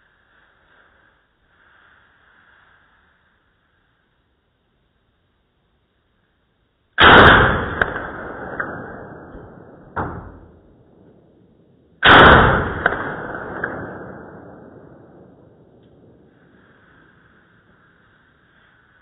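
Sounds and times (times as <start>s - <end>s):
sharp thump: 7.0s - 10.6s
slowed rifle shot boom: 7.0s - 16.6s.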